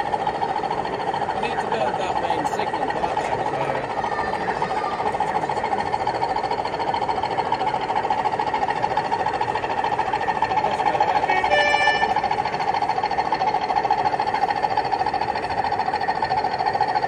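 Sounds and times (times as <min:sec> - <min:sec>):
model train rattling hum: 0:00.0 - 0:17.0
brief pitched tone: 0:11.2 - 0:12.2.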